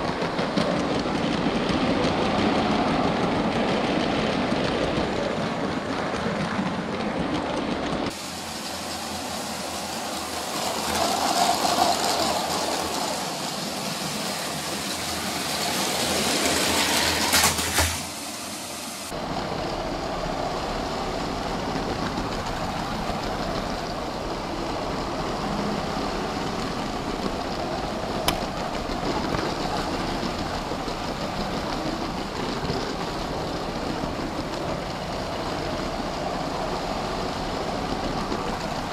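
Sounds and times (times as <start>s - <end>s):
toy train running on plastic track: 0.0s - 18.1s, 19.1s - 38.9s.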